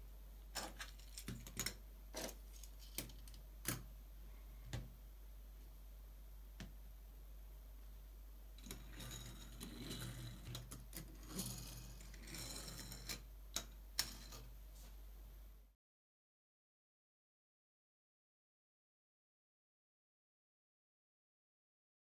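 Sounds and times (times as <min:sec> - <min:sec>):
steady low hum: 0:00.0 - 0:15.8
toy car wheels rolling and rattling: 0:08.6 - 0:13.2.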